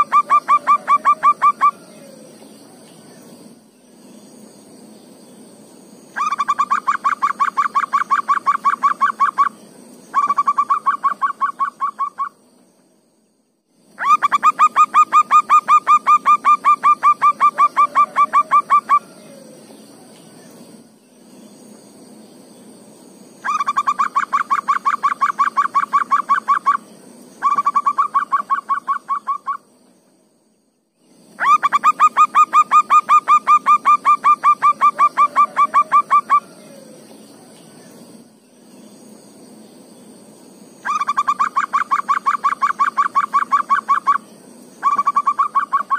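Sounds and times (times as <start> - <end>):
dove cooing in rapid bursts: 0.0 - 2.3, 6.2 - 9.5, 14.0 - 19.6, 23.4 - 26.8, 27.4 - 29.6, 31.4 - 37.0, 40.8 - 44.2, 44.8 - 45.9
faint high hiss: 0.0 - 45.9.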